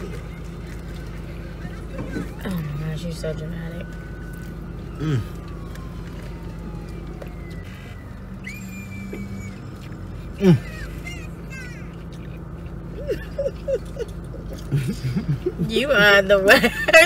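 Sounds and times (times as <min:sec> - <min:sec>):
idling car hum: 0:00.0 - 0:17.0
person making enjoyment sounds: 0:10.3 - 0:12.0, 0:12.8 - 0:15.6.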